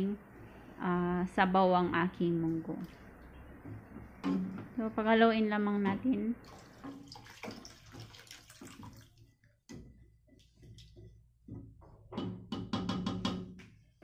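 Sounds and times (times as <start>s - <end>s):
water pouring into a steel pot: 6.4s - 9.3s
wooden spoon stirring and scraping: 6.7s - 12.2s
sharp knocks: 11.5s - 13.6s.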